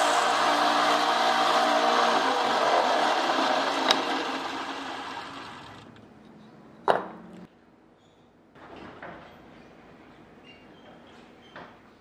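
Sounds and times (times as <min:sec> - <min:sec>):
belt sander spinning down: 0:00.0 - 0:05.9.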